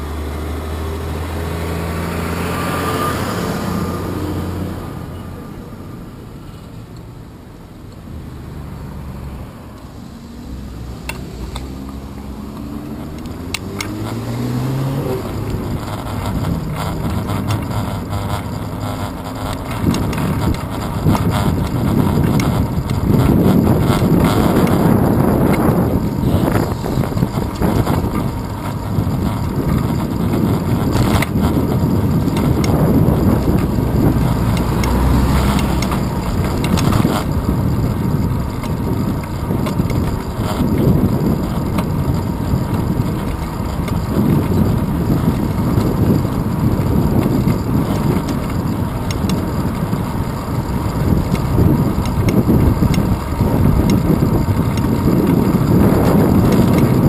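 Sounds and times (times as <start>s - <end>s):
bicycle road rumble: 0.0s - 57.0s
wind rush: 19.7s - 57.0s.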